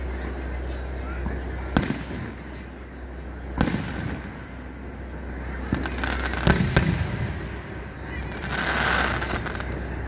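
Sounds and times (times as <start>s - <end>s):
fireworks sharp bangs: 1.3s - 2.8s, 3.5s - 10.0s
firework hissing: 3.4s - 10.0s.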